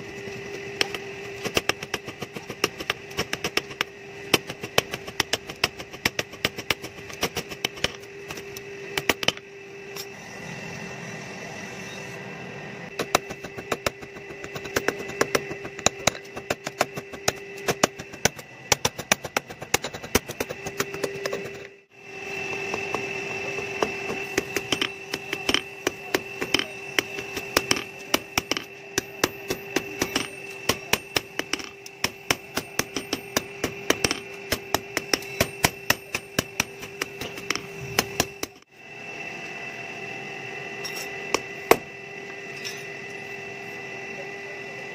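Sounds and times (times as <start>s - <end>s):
hammer striking hot steel on anvil: 0.7s - 10.1s, 12.9s - 21.7s, 22.4s - 38.6s, 40.8s - 41.9s
electric blower hum: 12.9s - 29.5s.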